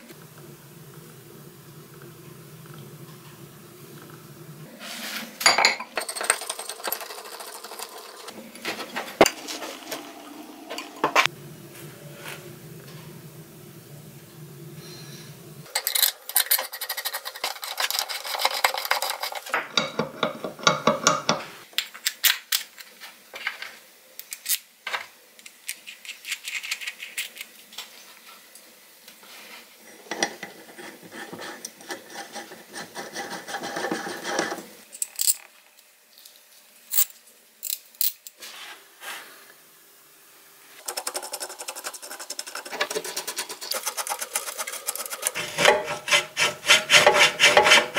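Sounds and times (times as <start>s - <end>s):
hand scraper rasping on workpiece: 40.9s - 47.9s.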